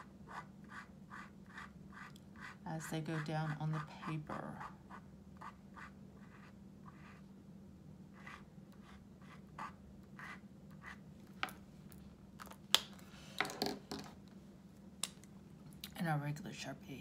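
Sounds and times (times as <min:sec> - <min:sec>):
marker scratching on paper: 0:00.0 - 0:07.2, 0:08.1 - 0:11.0.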